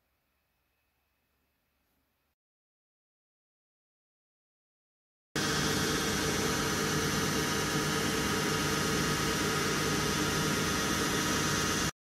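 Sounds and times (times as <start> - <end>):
lathe machine hum: 5.4 - 11.9.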